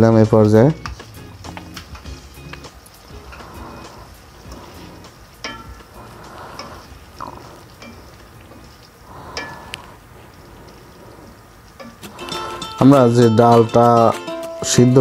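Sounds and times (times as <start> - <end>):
gravy sizzling in a pan: 1.1 - 10.4.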